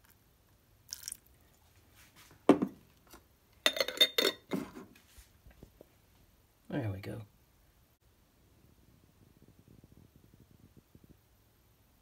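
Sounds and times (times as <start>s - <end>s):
liquid pouring: 0.8s - 1.4s
glass lid clinking: 3.7s - 4.7s.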